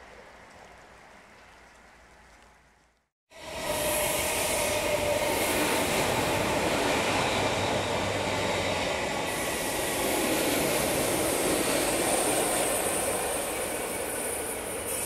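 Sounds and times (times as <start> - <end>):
train wheels rumbling on rail: 3.3 - 15.0.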